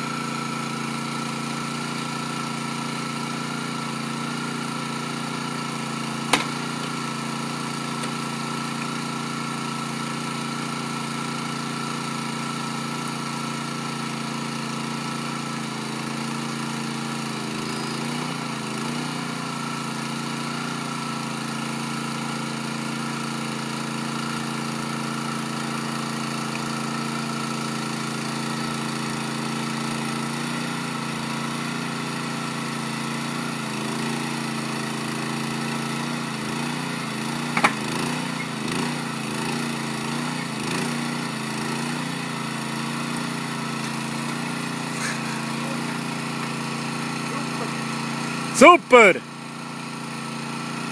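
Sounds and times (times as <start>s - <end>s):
small engine idling: 0.0s - 50.9s.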